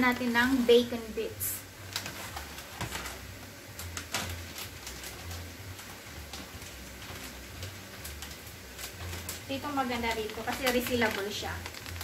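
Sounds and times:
bacon bits shaken from plastic bag: 8.1 - 12.0.

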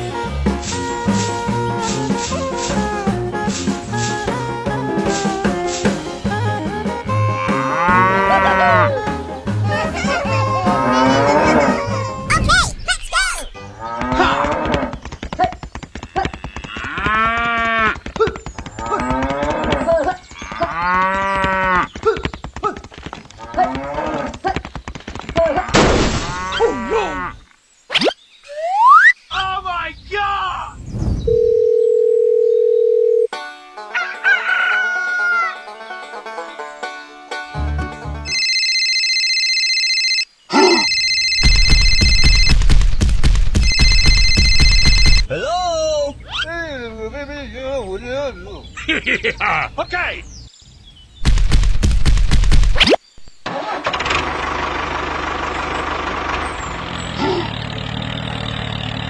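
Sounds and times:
cattle mooing: 7.2 - 9.0, 10.3 - 12.1, 13.8 - 14.9
telephone ringing: 31.3 - 33.3, 38.3 - 42.6, 43.6 - 45.3.

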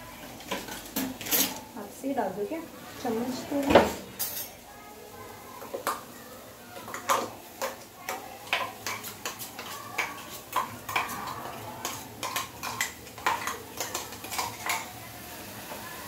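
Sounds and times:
metal spoon scraping a pan: 0.4 - 1.6, 6.8 - 15.0.

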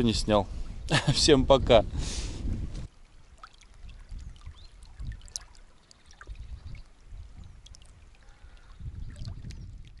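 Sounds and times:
wind buffeting microphone: 0.0 - 2.9, 3.8 - 5.4, 6.2 - 10.0
river waves lapping and splashing: 2.9 - 10.0.

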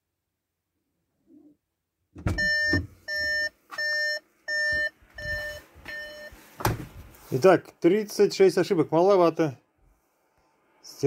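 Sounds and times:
electronic warning beeps: 2.3 - 6.4.

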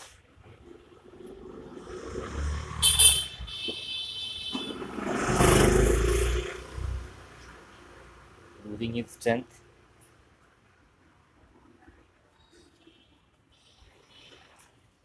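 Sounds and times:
vehicle engine passing: 0.6 - 3.4, 4.6 - 9.1.

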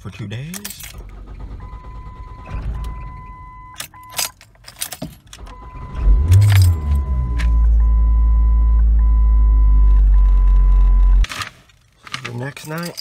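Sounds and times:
car keys jangling: 0.4 - 1.3, 3.7 - 5.5, 6.1 - 7.4, 12.1 - 13.0
car engine cranking and starting: 0.6 - 11.2
dashboard warning tone: 5.5 - 11.2.

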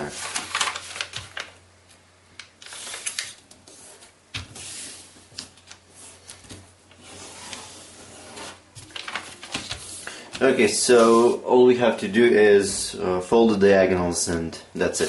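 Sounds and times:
paper rustling and swishing: 0.0 - 1.6, 2.6 - 11.4.

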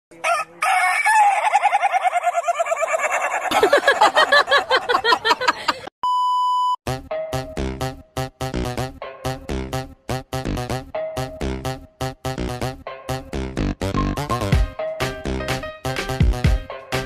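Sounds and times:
rooster crowing: 0.2 - 3.6
test-tone beep: 6.0 - 6.8
electronic music with a beat: 13.6 - 17.0.

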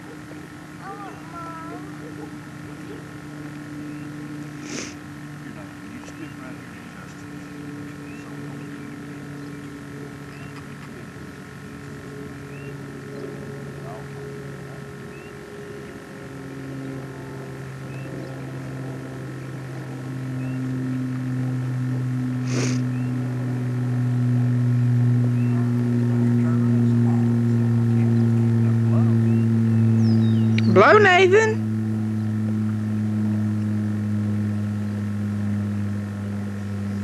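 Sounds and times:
low mechanical drone: 0.0 - 37.0.

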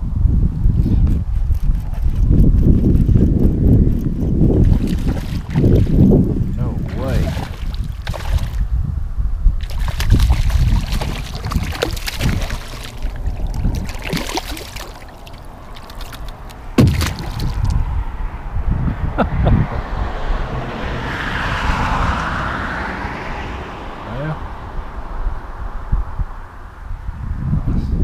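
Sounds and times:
water splashing and sloshing: 4.6 - 8.7, 9.6 - 18.2
sharp knock: 16.8 - 17.7.

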